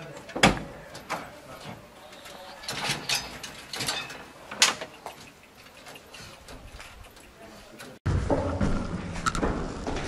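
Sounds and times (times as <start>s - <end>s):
metal kennel door clicks and rattles: 2.6s - 5.8s.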